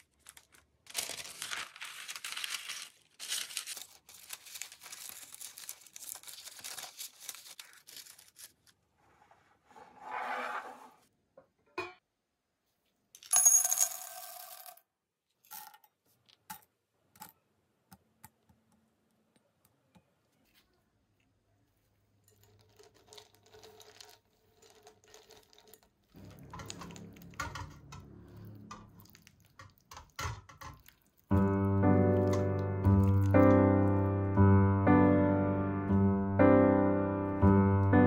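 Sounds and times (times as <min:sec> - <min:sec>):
low hum: 0:26.2 - 0:29.3.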